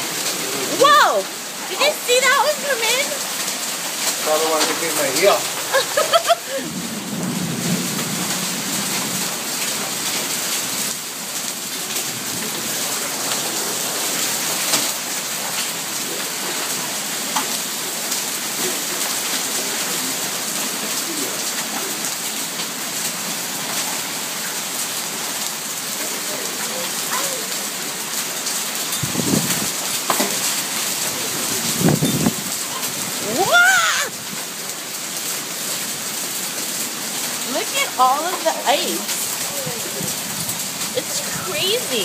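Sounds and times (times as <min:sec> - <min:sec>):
heavy rain hissing: 0:00.0 - 0:42.0
hailstones clicking: 0:00.2 - 0:06.6, 0:20.6 - 0:42.0.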